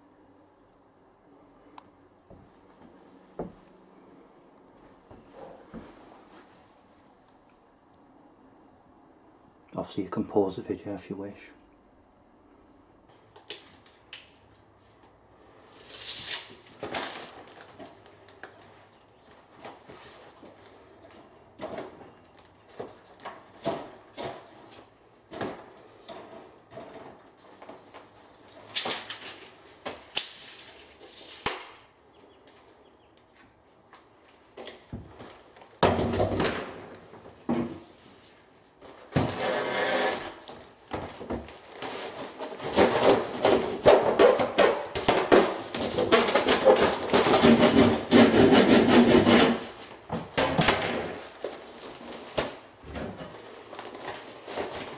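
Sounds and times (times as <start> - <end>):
plastic wrapping crinkling: 15.9 - 20.8, 40.3 - 47.6, 51.1 - 54.9.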